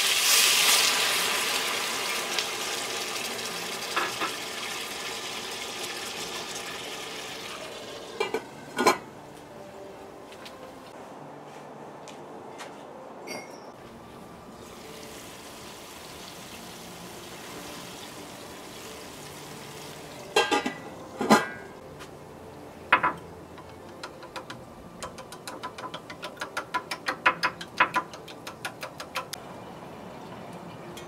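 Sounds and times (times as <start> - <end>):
pan lid clanking: 20.4 - 21.7.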